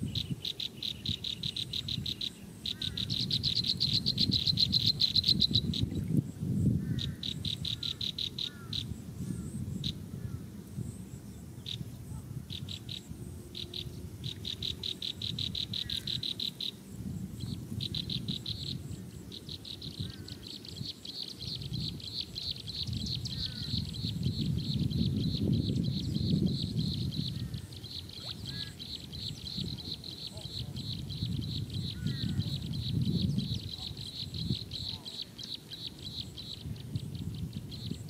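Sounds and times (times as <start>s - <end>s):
insect chirping in pulses: 0.0s - 38.0s
faint bird chirps: 17.4s - 38.0s.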